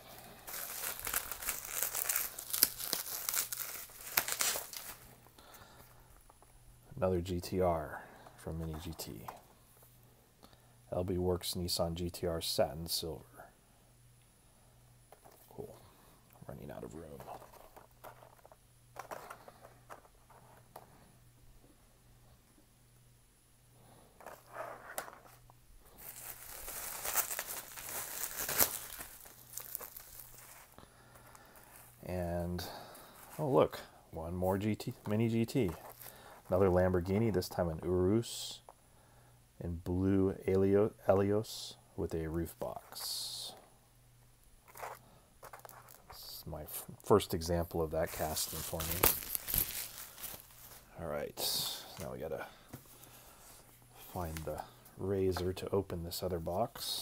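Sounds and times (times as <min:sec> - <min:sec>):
bubble wrap crinkling and crackling: 0:00.0 - 0:05.3, 0:25.8 - 0:32.1, 0:34.5 - 0:37.0, 0:47.9 - 0:52.0.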